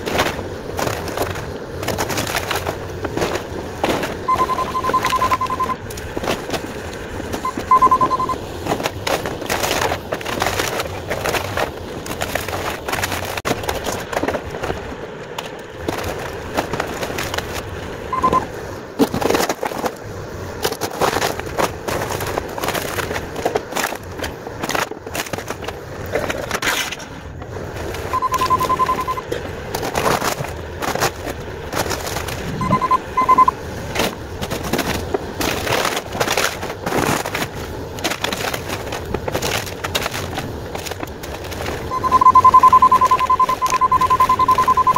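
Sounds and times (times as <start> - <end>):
splintering wood crashing: 0.0 - 4.3, 8.6 - 14.8, 33.9 - 41.8
excavator engine running: 0.0 - 44.9
rapid electronic beeping: 4.3 - 5.8, 7.4 - 8.4, 18.1 - 18.5, 28.1 - 29.3, 32.6 - 33.5, 41.9 - 44.9.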